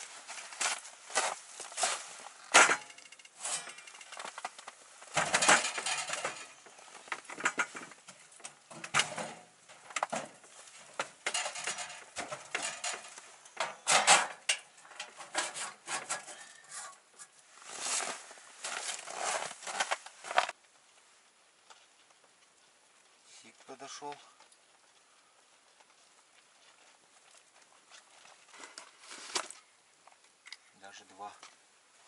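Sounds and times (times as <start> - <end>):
metal clinks and knocks: 2.5 - 16.5.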